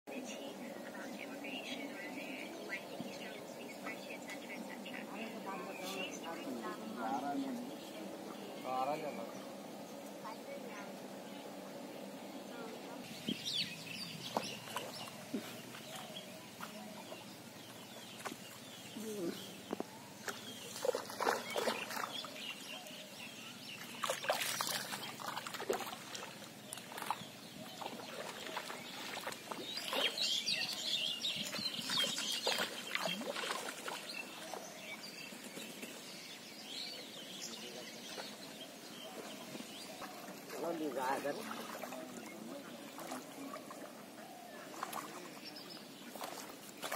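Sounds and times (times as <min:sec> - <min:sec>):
splash-like sounds: 0:20.6 - 0:22.4, 0:23.8 - 0:30.4, 0:31.8 - 0:34.6, 0:39.1 - 0:43.9, 0:44.7 - 0:46.9.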